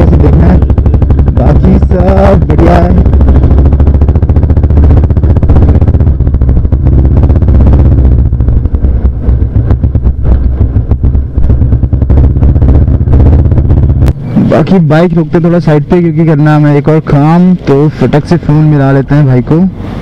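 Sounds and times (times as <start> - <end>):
motorcycle engine running: 0.0 - 18.4.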